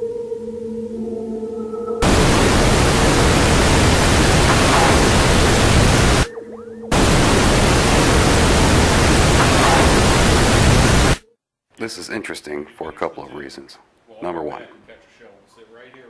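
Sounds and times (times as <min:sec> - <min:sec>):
loud recorder hiss: 0:02.0 - 0:06.3, 0:06.9 - 0:11.2.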